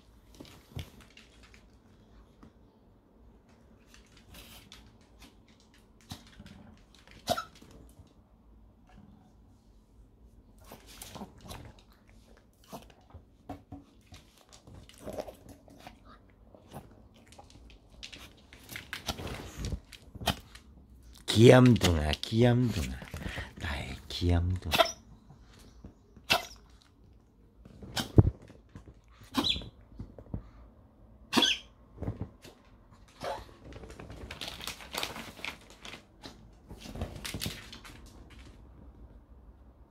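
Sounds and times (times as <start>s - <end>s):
small dog making sharp noises: 7.2s - 7.7s, 26.2s - 26.7s, 29.2s - 29.7s, 31.3s - 31.7s.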